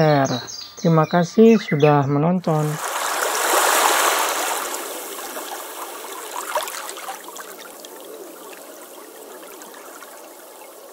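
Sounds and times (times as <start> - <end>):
water trickling and gurgling: 2.5 - 10.9.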